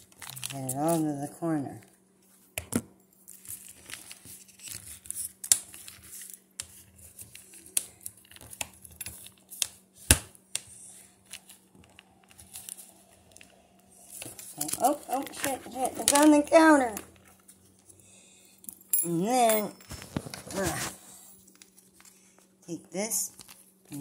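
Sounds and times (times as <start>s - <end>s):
plastic pouch crinkling: 0.0s - 1.0s, 11.2s - 17.6s.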